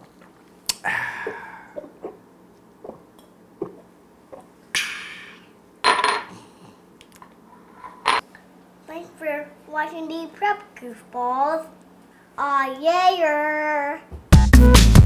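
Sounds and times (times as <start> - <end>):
drinking glasses clinking: 5.9 - 6.3.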